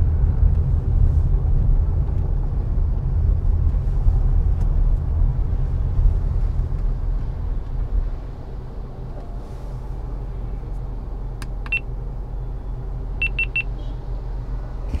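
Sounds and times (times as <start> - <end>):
car rumble from inside: 0.0 - 15.0
high electronic beeps: 13.2 - 13.8.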